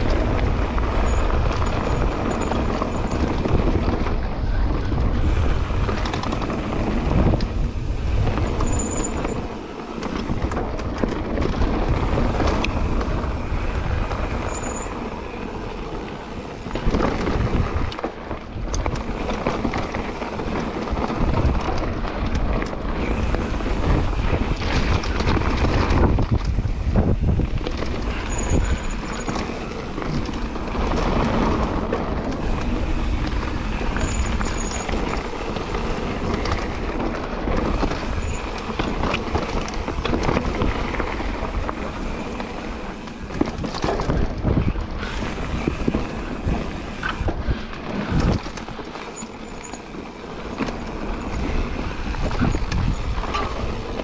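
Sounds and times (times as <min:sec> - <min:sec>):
bike knocks and rattles: 0:00.0 - 0:54.0
tyre noise on dirt: 0:00.0 - 0:54.0
wind rush over microphone: 0:00.0 - 0:54.0.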